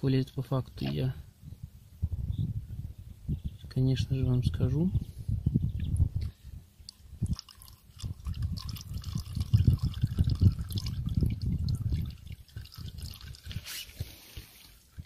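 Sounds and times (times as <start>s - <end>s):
oil trickling into a plastic canister: 6.8s - 15.0s.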